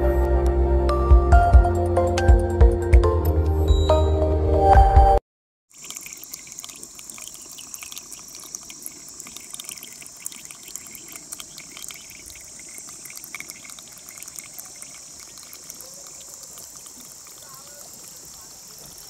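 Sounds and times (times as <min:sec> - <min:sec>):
water drips and splashes: 0:05.7 - 0:19.0
water trickling down rock: 0:05.7 - 0:19.0.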